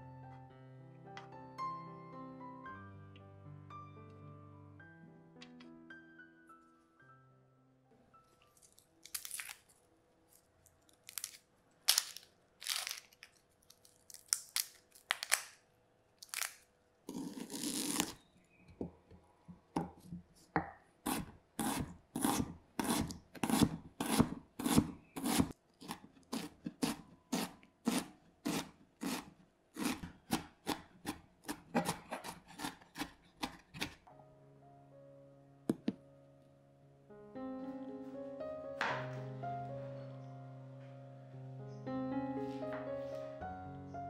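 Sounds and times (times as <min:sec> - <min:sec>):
onion skin peeling crackles: 0:08.4 - 0:15.6, 0:16.2 - 0:18.3
knife chopping on wooden board: 0:20.6 - 0:34.0.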